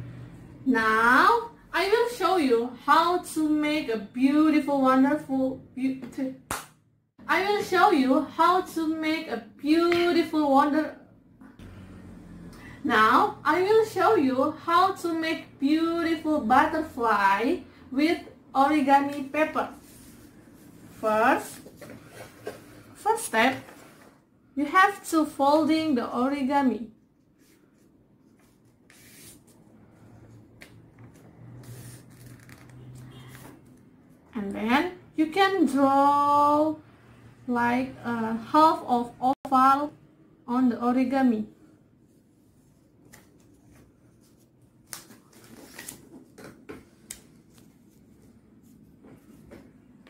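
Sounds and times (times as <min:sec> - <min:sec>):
paper rustling as it is folded: 0:31.6 - 0:32.9, 0:42.7 - 0:46.4
paper rustling and crinkling: 0:43.1 - 0:48.8.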